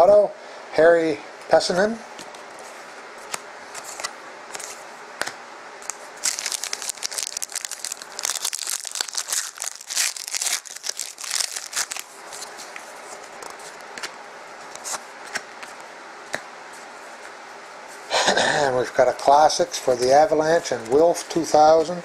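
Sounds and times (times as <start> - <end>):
foil wrapper tearing and crinkling: 5.8 - 12.6.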